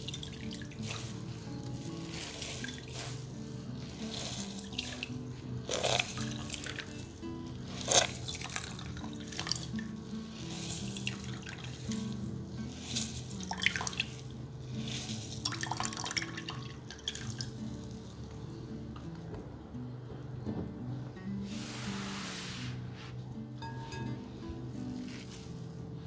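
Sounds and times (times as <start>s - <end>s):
juice trickling into bowl: 0.0s - 18.4s
soft background music: 0.0s - 26.0s.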